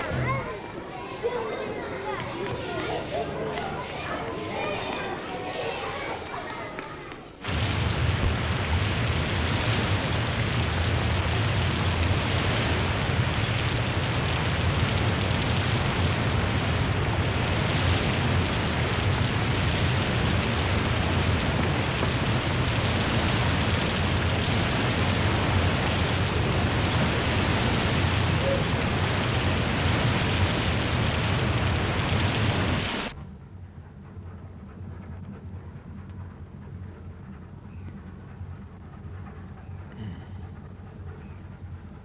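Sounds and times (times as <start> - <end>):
ferry engines rumbling: 0.0 - 42.0
sea waves breaking: 7.4 - 33.2
wind rushing: 7.4 - 33.2.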